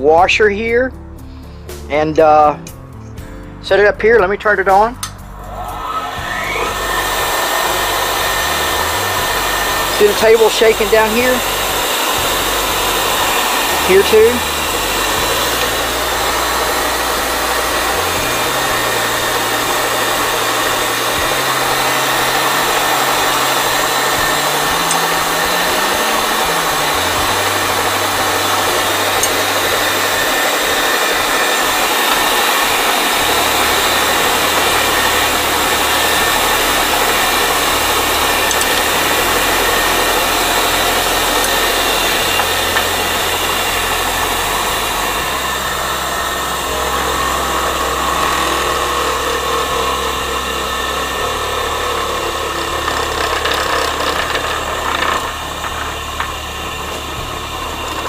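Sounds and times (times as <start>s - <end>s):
low hum shifting in pitch: 0.0s - 58.0s
bench grinder whirring: 4.7s - 58.0s
grinder table shaking: 52.6s - 56.3s.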